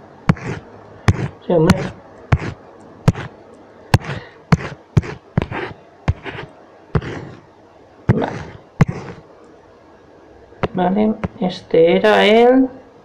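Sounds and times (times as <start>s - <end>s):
sharp taps with scraping rustle: 0.3s - 3.3s.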